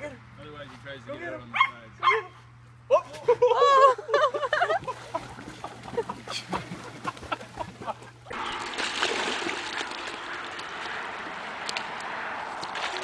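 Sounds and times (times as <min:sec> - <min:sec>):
water splashing from dog swimming: 0:04.8 - 0:11.1.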